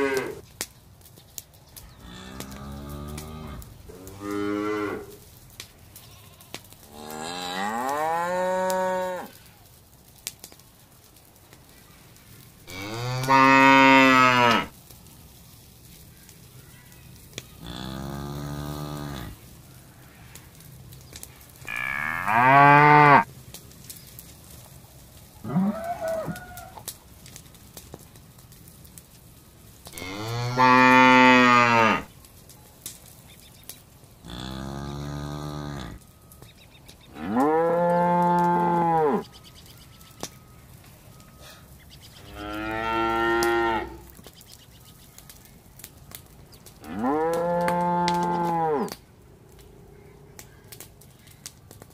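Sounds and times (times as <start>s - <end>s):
calves mooing: 2.0s - 5.2s, 6.0s - 9.3s, 12.7s - 14.7s, 17.6s - 19.4s, 21.6s - 23.3s, 25.4s - 26.8s, 30.0s - 32.1s, 34.2s - 36.0s, 37.1s - 39.4s, 42.2s - 44.1s, 46.8s - 49.0s.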